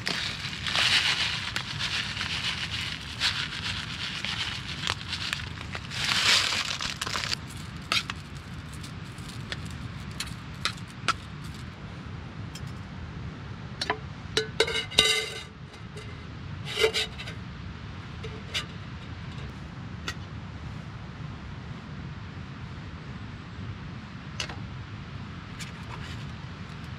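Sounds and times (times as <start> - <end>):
plastic bag crinkling: 0.0 - 11.7
ringing metal scrape: 14.6 - 17.4.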